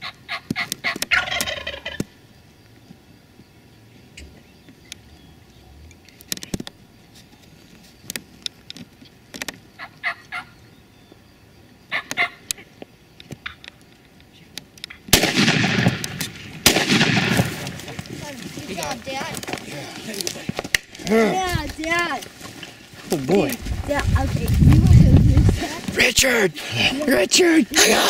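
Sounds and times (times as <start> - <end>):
turkey gobbling: 0.0 - 2.1, 9.8 - 10.6, 11.9 - 12.7
shotgun blasts: 15.1 - 17.8.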